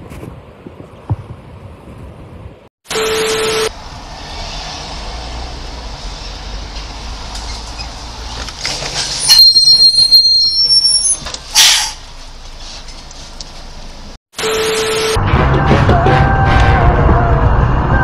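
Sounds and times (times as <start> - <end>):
brakes squealing: 3.5 - 14.0
car road rumble: 3.7 - 9.3, 15.2 - 18.0.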